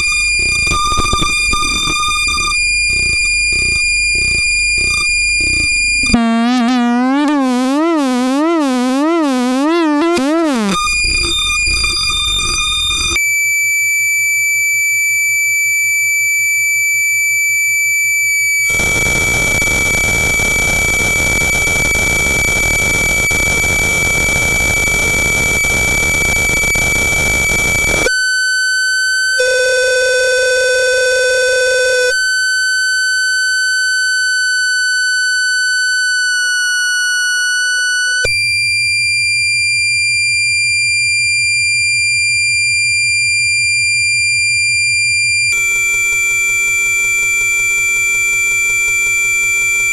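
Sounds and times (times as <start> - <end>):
high electronic feedback tone: 0.0 - 13.6, 17.9 - 49.9.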